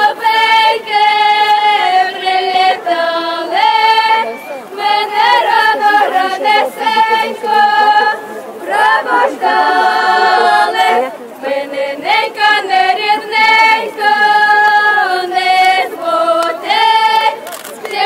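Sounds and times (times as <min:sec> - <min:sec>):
women and girls singing unaccompanied: 0:00.0 - 0:18.0.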